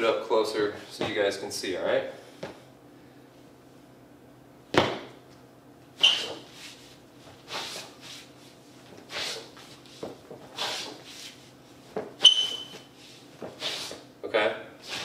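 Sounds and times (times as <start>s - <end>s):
rubber sole squeak: 6.0s - 6.6s, 12.2s - 12.9s
sneakers sliding on hard floor: 6.0s - 14.1s.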